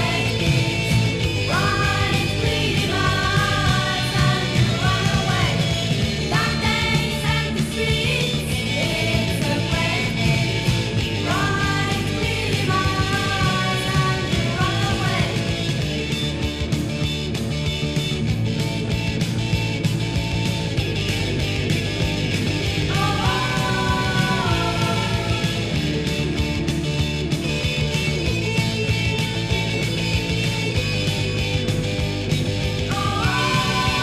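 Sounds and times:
woman singing: 0.0s - 15.5s, 22.9s - 25.7s, 32.9s - 34.0s
rock band playing: 0.0s - 34.0s.

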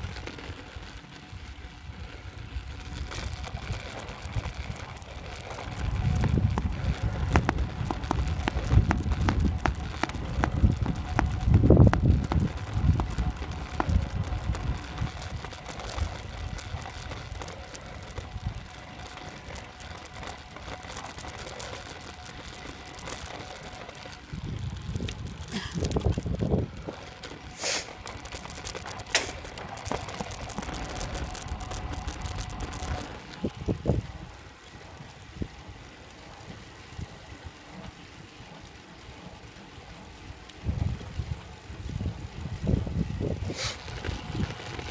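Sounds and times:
road and tyre noise: 0.0s - 44.9s
wind buffeting microphone: 1.4s - 17.4s, 24.1s - 27.0s, 29.4s - 35.8s, 40.3s - 44.9s
sharp clicks: 2.8s - 33.4s.

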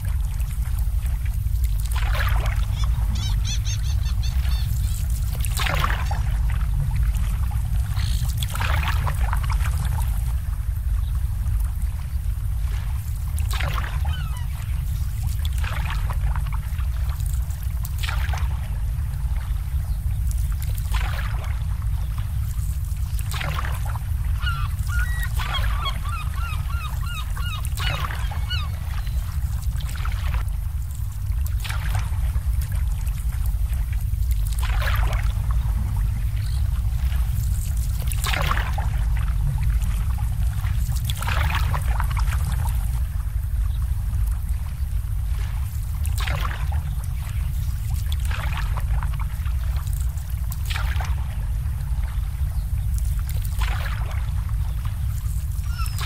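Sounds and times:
low rumble: 0.0s - 56.0s
water lapping against boat hulls: 0.0s - 56.0s
waterfowl calling: 2.4s - 5.2s, 13.9s - 14.6s, 24.3s - 29.3s, 55.6s - 56.0s.

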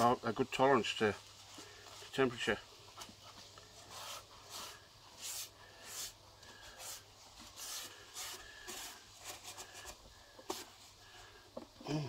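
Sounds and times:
paper towel scrubbing griddle plate: 3.3s - 10.9s.

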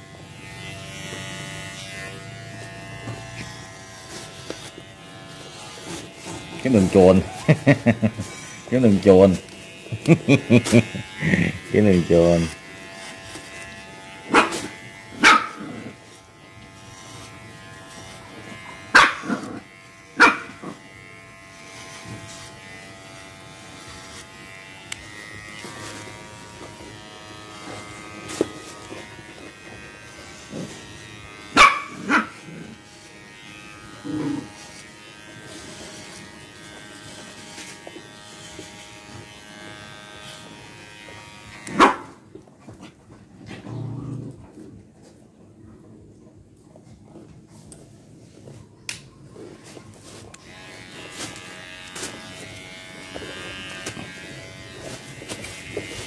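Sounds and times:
electric clippers humming: 0.0s - 42.5s, 49.9s - 56.0s
dog barking sharply: 15.2s - 15.6s, 19.0s - 19.4s, 20.2s - 20.5s, 31.6s - 32.3s, 41.7s - 42.1s.

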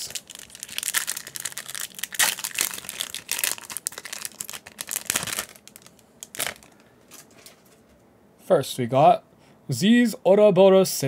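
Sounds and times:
foil pack crinkling: 0.0s - 7.7s.

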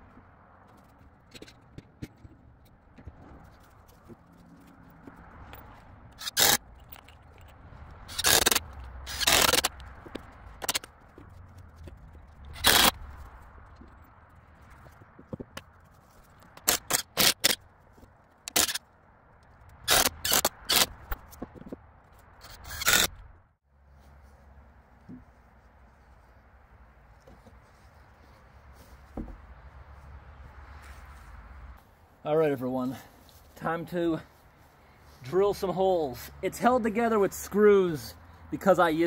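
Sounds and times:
drill driving screws into wood: 6.2s - 6.6s, 8.1s - 9.7s, 12.6s - 12.9s, 16.6s - 17.6s, 19.9s - 20.9s, 22.6s - 23.1s.

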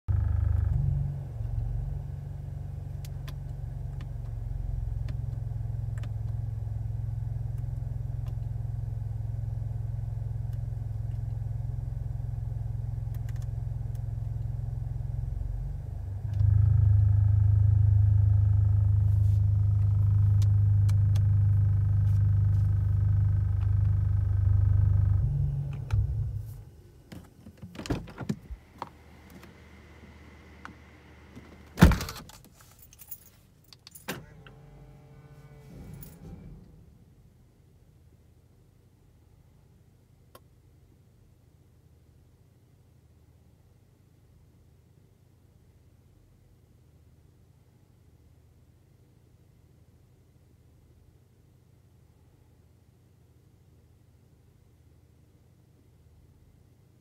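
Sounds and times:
car engine idling: 0.1s - 31.8s.

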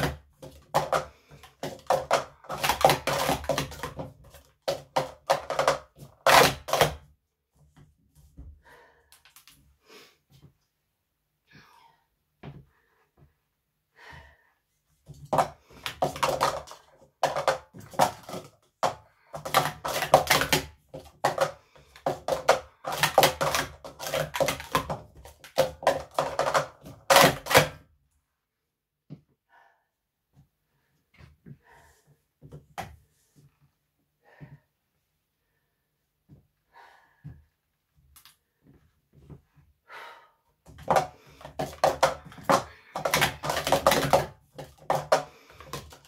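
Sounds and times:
plastic cups clattering: 0.0s - 7.0s, 15.1s - 27.8s, 40.7s - 46.0s.

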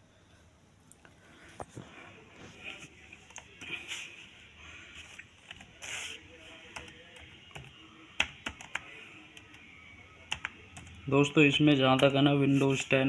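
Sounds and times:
laptop keyboard typing: 5.2s - 12.2s.

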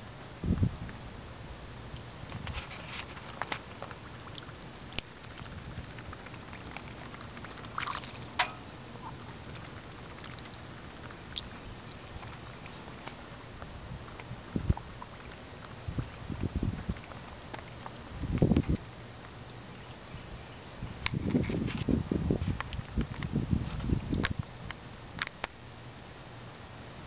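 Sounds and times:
duck bills clicking and slurping: 2.3s - 19.8s.

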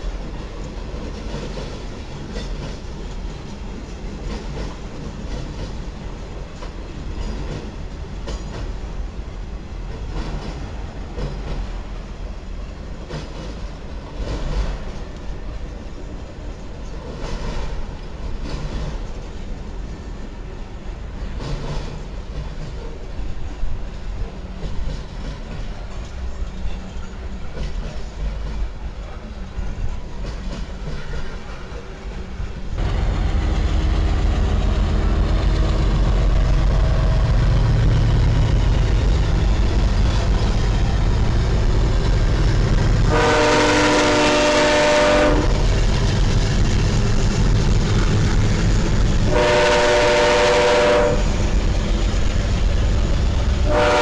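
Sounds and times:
diesel locomotive engine rumble: 0.0s - 54.0s
freight train rolling past: 0.0s - 54.0s
train air horn chord: 43.0s - 45.6s, 49.3s - 51.3s, 53.6s - 54.0s.

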